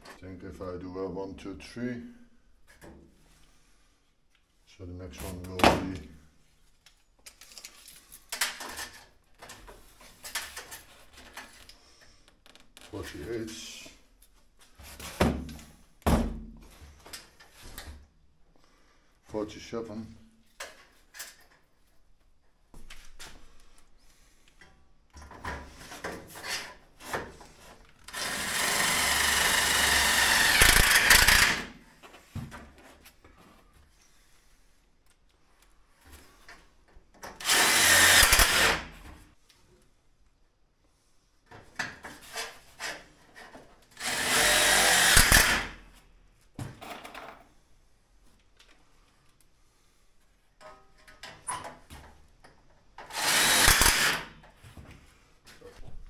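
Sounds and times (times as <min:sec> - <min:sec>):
power drill running: 0:28.1 - 0:31.7, 0:37.4 - 0:38.8, 0:44.0 - 0:45.7, 0:53.1 - 0:54.3.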